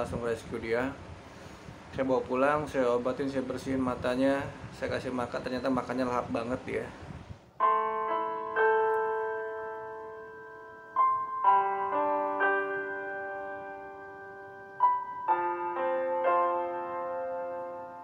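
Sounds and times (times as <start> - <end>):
slow piano music: 7.6 - 18.0.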